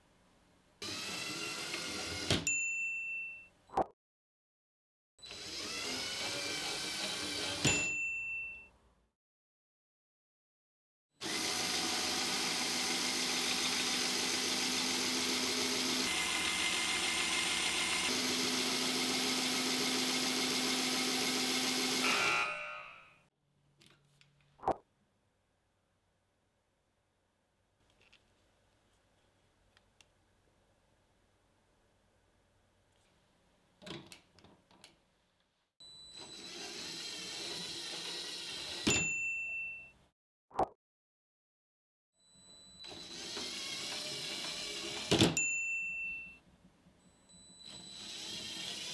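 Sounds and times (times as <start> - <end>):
bright ding: 2.5 - 3.5, 38.9 - 40.0, 45.4 - 46.4
toy train motor whining: 36.2 - 38.9, 42.8 - 45.2, 47.6 - 48.9.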